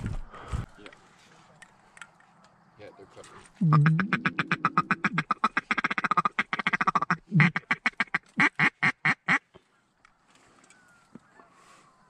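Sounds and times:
duck call quacking: 0:03.6 - 0:09.5.

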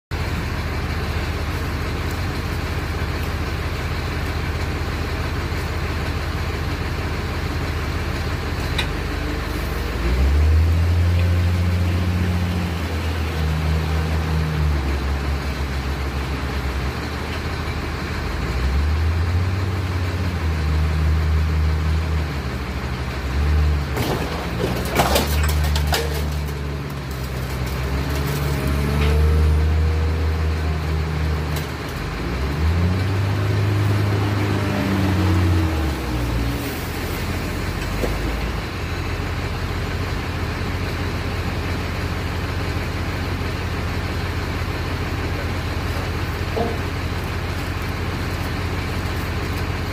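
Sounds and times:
diesel engine revving: 0:00.1 - 0:49.9
metal cracking and creaking: 0:24.0 - 0:29.4.

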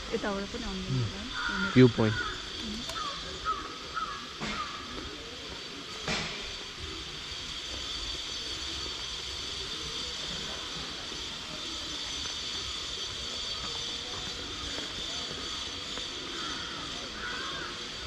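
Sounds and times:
high-pitched ringing: 0:05.0 - 0:18.0.

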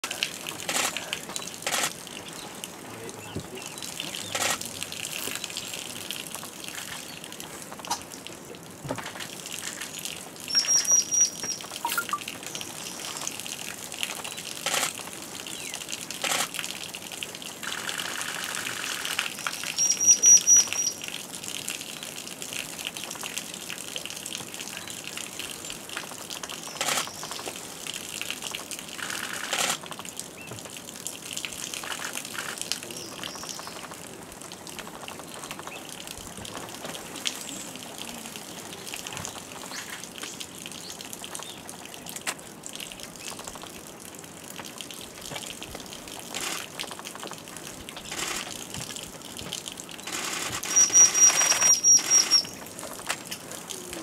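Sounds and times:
water trickling: 0:00.0 - 0:54.0
bird high chirps: 0:10.5 - 0:13.0, 0:19.8 - 0:21.0, 0:50.7 - 0:52.6.

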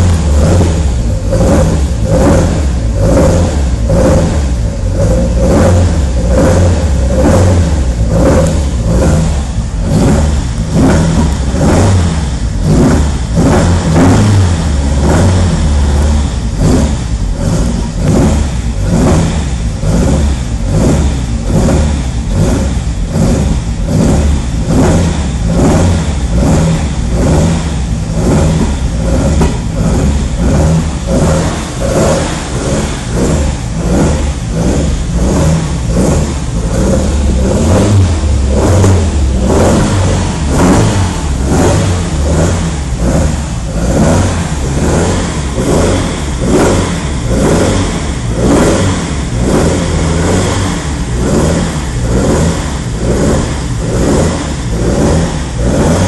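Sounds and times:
car engine fast idling: 0:00.0 - 0:56.0.

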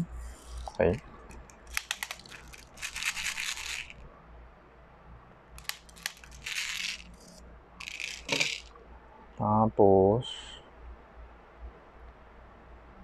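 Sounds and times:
sharp clicks: 0:01.3 - 0:03.9, 0:05.6 - 0:08.7
pellets rattling into a magazine: 0:01.6 - 0:04.0, 0:05.6 - 0:08.7.

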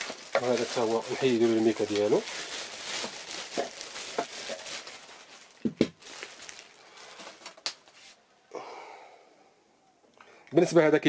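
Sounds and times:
plastic wrapping rustling: 0:00.0 - 0:08.2.

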